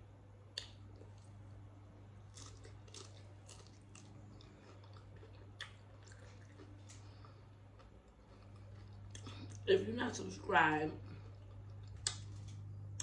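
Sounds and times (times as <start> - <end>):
low steady hum: 0.0 - 13.0
person chewing crunchy food: 2.2 - 9.7, 11.0 - 13.0.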